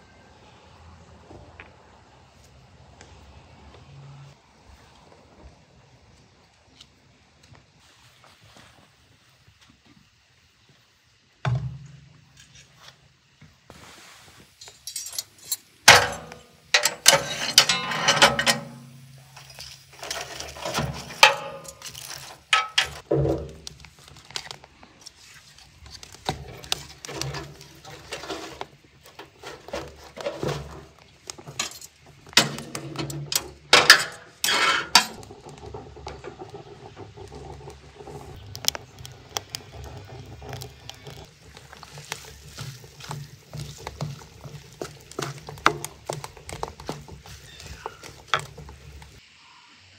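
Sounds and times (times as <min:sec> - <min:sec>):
fire crackling: 0:04.6 - 0:49.3
metal clanks of pan and stove: 0:14.6 - 0:23.7, 0:26.2 - 0:38.8, 0:39.4 - 0:49.2
wood and kindling rattling: 0:14.7 - 0:49.2.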